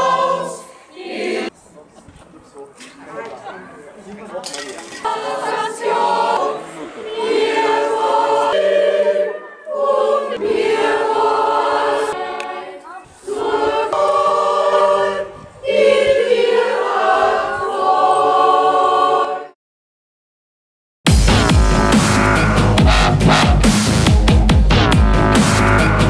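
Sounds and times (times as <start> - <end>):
mixed choir singing: 0.0 - 1.6, 5.0 - 19.6.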